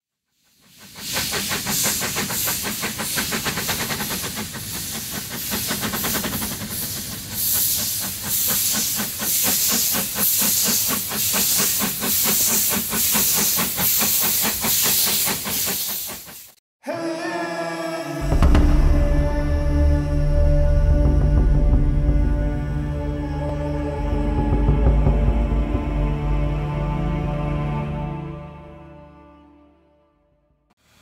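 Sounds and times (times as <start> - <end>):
steam hissing: 0.3 - 16.6
steam locomotive chuffing: 0.3 - 16.6, 18.2 - 22.7.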